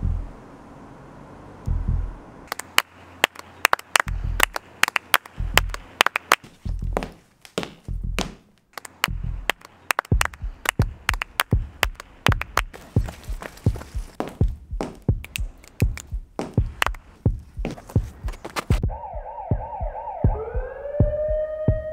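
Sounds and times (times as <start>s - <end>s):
deep heavy percussion thuds: 1.7s - 2.2s, 4.1s - 4.5s, 5.4s - 5.8s, 6.6s - 7.2s, 7.8s - 8.4s, 10.1s - 21.9s
sharp percussive clicks and claps: 2.5s - 17.1s.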